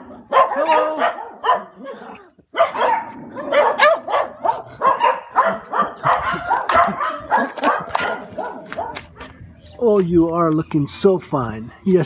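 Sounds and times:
small dogs barking and yapping: 0:00.0 - 0:09.4.

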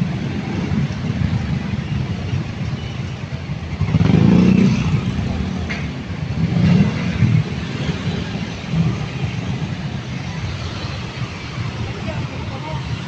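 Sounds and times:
street traffic engines: 0:00.0 - 0:13.0
engine revving loudly: 0:03.9 - 0:05.3.

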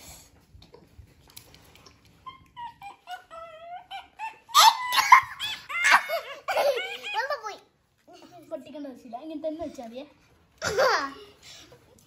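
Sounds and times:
child whining squeal: 0:02.7 - 0:07.3
child giggling: 0:03.9 - 0:07.6, 0:10.6 - 0:11.4.

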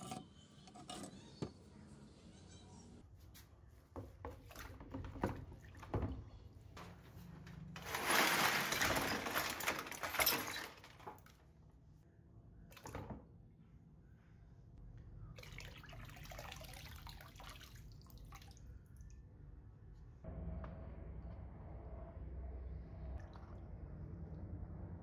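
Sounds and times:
metal parts clattering into water: 0:07.8 - 0:11.4
water pouring into tub: 0:15.4 - 0:18.6.

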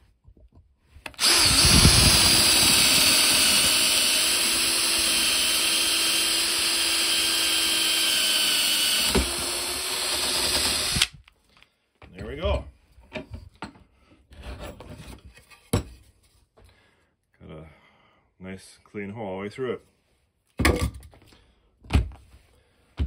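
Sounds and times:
power drill boring through wood: 0:01.1 - 0:11.3.

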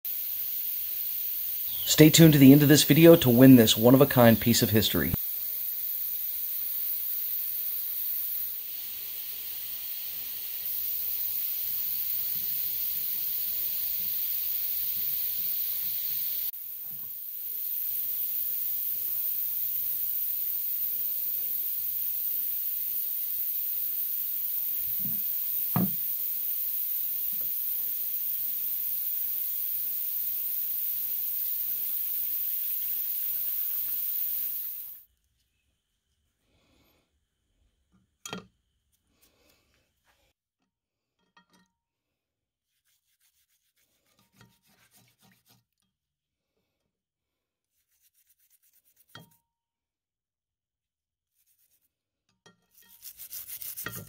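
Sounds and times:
steady high hiss: 0:00.1 - 0:35.0.

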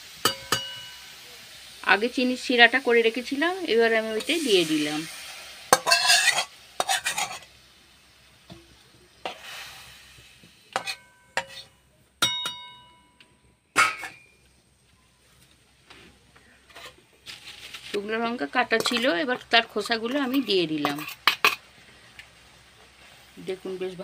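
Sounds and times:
sizzling: 0:00.0 - 0:24.0
spatula clinking on metal pan: 0:00.2 - 0:01.0, 0:05.7 - 0:07.4, 0:10.7 - 0:13.2
metal spatula stirring: 0:05.7 - 0:07.5, 0:10.7 - 0:12.6, 0:16.6 - 0:21.8.

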